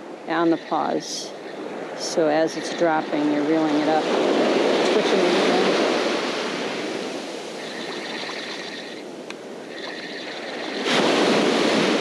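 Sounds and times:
surf washing on shore: 0.0 - 12.0
fishing reel whine: 7.6 - 10.8.

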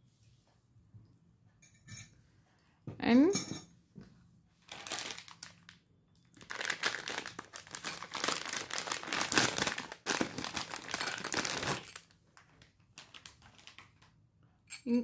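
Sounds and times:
plastic bag crinkling: 4.6 - 14.1.

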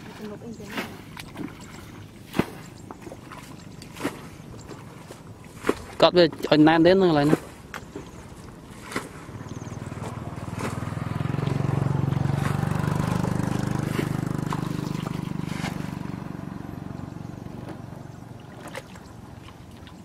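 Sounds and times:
small engine passing by: 8.1 - 20.0.

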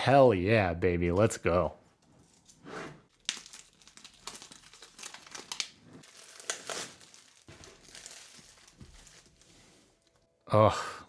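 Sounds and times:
wrapping crinkling and tearing: 2.2 - 10.3.

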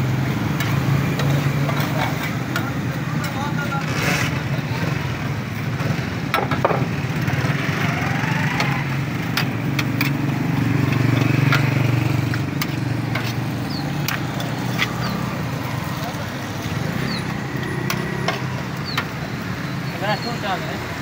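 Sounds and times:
road traffic hum: 0.0 - 21.0
metal rod clicking on coals: 8.6 - 15.4.

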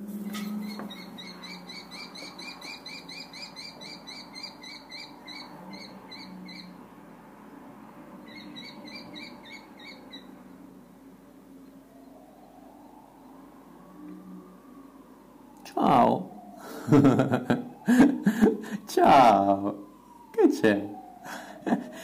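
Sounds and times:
kestrel calling: 0.3 - 6.8, 8.3 - 10.4.

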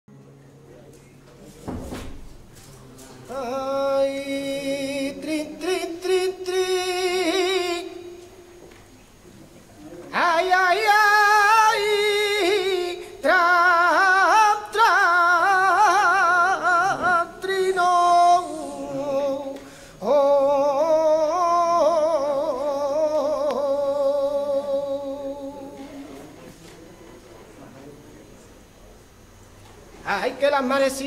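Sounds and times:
man singing unaccompanied: 3.2 - 8.4, 10.0 - 25.9, 30.0 - 31.0
singer breathing: 18.4 - 20.0.

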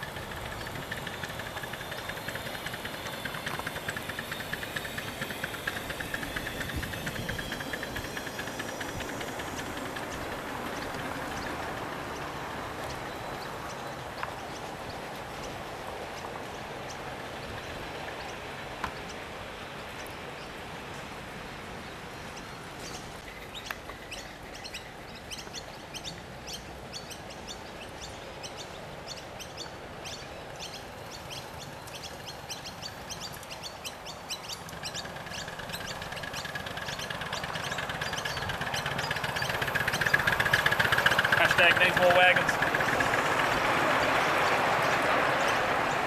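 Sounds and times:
model steam locomotive running: 0.0 - 18.8, 31.0 - 46.0
birds chirping: 0.0 - 46.0.

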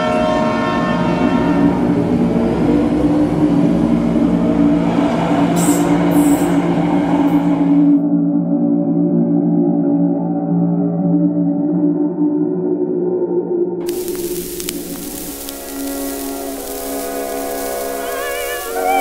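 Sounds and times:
train rumbling past: 0.4 - 8.0
train screeching: 3.5 - 8.0, 14.0 - 19.0.

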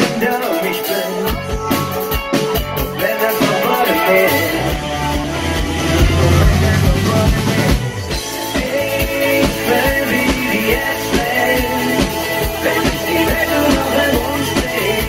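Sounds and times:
person singing: 0.0 - 2.2, 2.8 - 15.0
bass: 0.0 - 15.0
guitars: 0.0 - 15.0
heavy low bass: 4.5 - 15.0.

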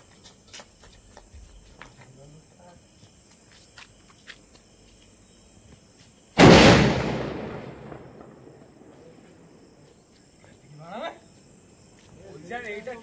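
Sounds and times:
firecracker bang: 6.4 - 8.9.

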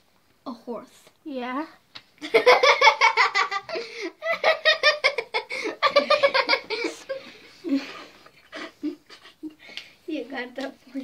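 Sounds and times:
girls giggling: 2.2 - 9.7.

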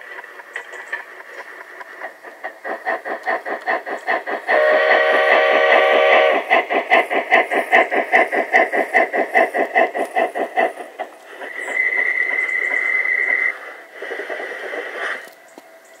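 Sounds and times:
model train steam chuffs: 0.0 - 15.9
model train running noise: 0.0 - 16.0
high steam whistle: 4.5 - 6.5, 11.5 - 13.8.

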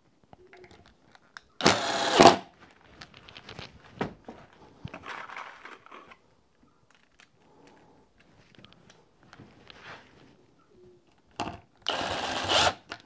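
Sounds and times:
cordless drill driving screw: 1.6 - 2.5, 11.8 - 13.0.

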